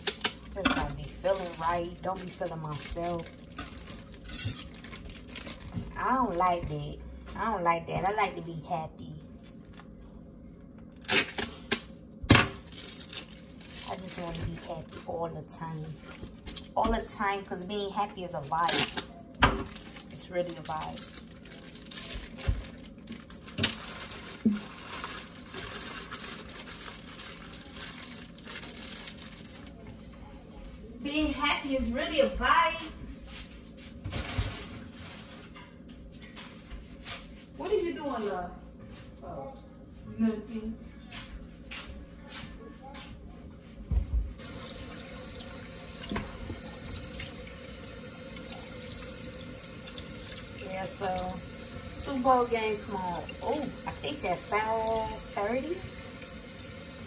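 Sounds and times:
crinkling and rustling: 0.0s - 6.4s, 12.5s - 15.1s, 18.5s - 30.1s
tap water running into sink: 44.4s - 57.0s.

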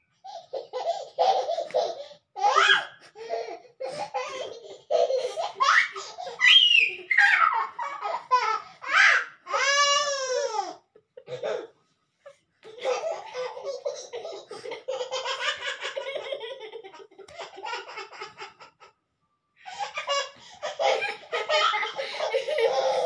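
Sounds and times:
hearty laughter: 12.3s - 19.0s, 20.7s - 23.0s.

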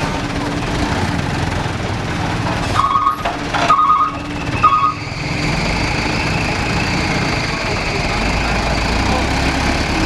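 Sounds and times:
diesel truck engine labouring: 0.0s - 10.0s
short high beeps: 2.8s - 5.0s.

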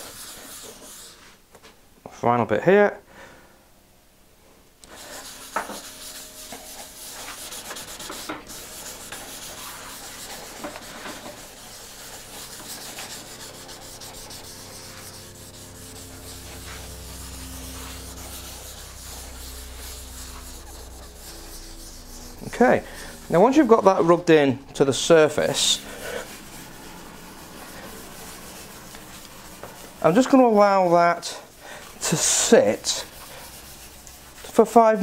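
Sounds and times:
sponge scrubbing wood: 0.0s - 1.3s, 4.9s - 35.0s.

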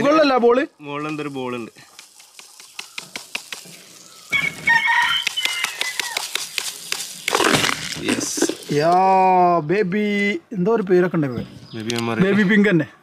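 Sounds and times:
powder pouring rush: 0.8s - 9.1s
rooster crowing: 4.2s - 6.3s
granules pattering on wooden table: 4.8s - 8.8s.

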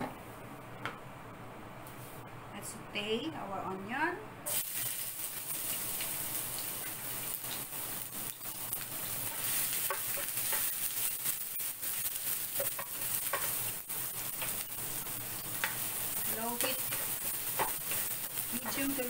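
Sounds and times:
onion sizzling in oil: 4.5s - 19.0s.

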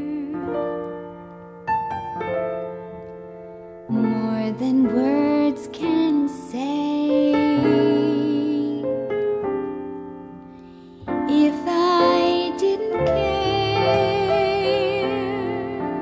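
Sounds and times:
person singing: 0.0s - 1.0s, 3.9s - 9.5s, 11.0s - 16.0s
piano: 0.0s - 16.0s.

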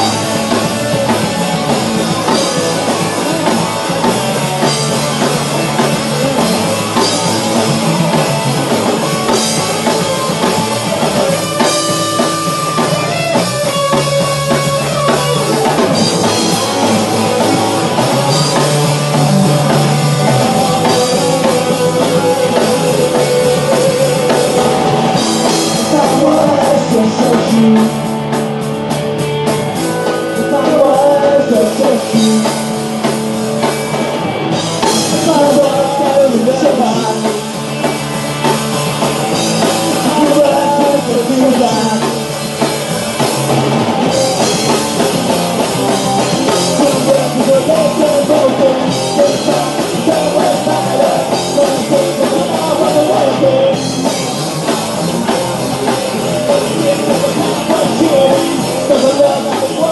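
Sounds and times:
distorted electric guitars: 0.0s - 59.9s
drum kit: 0.0s - 59.9s
men singing: 15.7s - 28.2s, 29.9s - 32.9s, 35.0s - 37.6s, 39.5s - 42.2s, 46.0s - 59.9s.

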